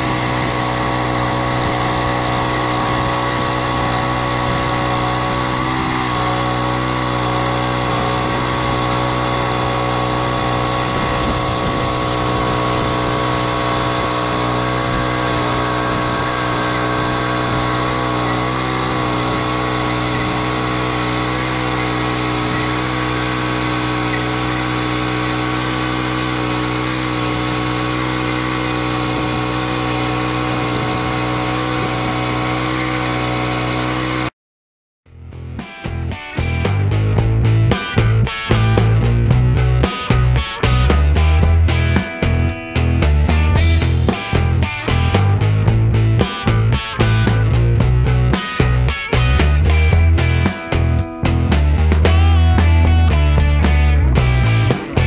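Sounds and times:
saw blade cutting log: 0.0s - 34.3s
small petrol engine running: 0.0s - 34.3s, 35.6s - 55.0s.

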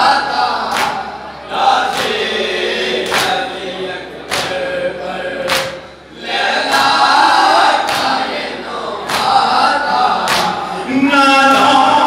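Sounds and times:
men chanting in unison: 0.0s - 12.0s
hands slapping chest: 5.5s - 5.8s, 7.9s - 8.2s, 9.1s - 9.4s, 10.3s - 10.6s.

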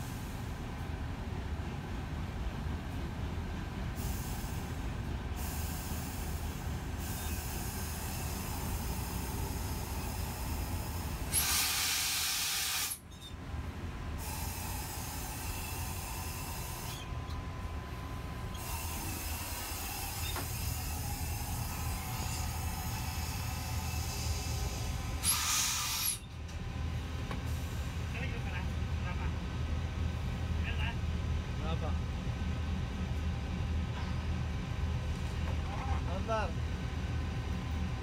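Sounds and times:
diesel train rumbling: 0.0s - 38.0s
air release hiss: 4.0s - 4.8s, 5.4s - 13.0s, 14.2s - 17.0s, 22.2s - 26.2s.

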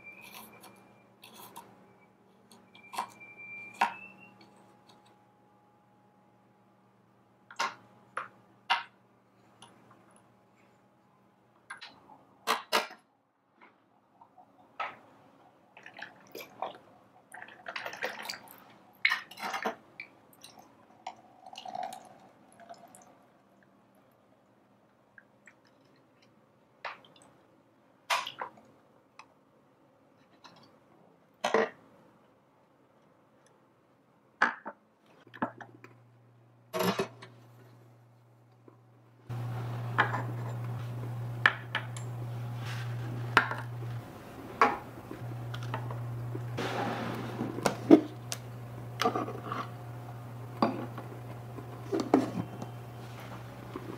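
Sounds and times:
low steady hum: 35.3s - 53.9s.

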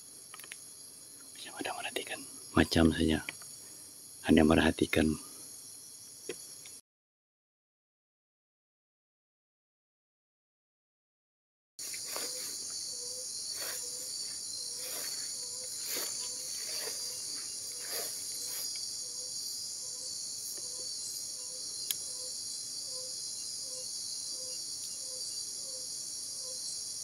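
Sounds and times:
crickets and night insects: 0.0s - 6.8s, 11.8s - 27.0s
low pulsed animal call: 12.0s - 26.6s.

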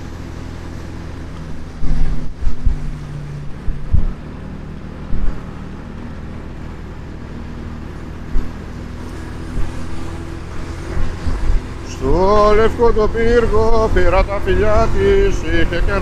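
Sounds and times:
motorcycle engine running: 0.0s - 16.0s
wind rumble on microphone: 0.0s - 16.0s
low thumps: 1.8s - 4.3s.

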